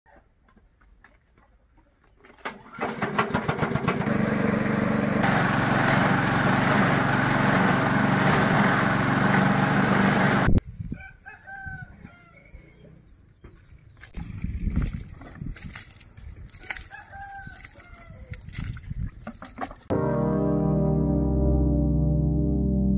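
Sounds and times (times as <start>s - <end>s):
small petrol engine running: 2.8s - 10.5s
rooster crowing: 10.9s - 12.6s, 16.7s - 18.3s.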